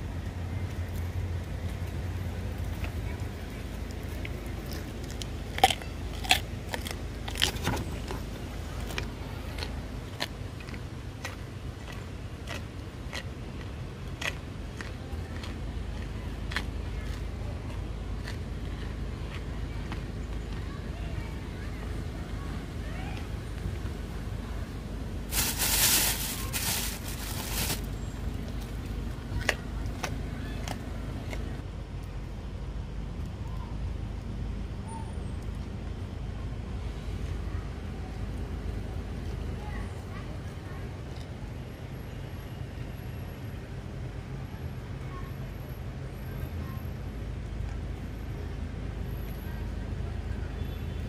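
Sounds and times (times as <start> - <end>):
deer crunching carrot: 3.8 - 20.6, 25.2 - 31.6.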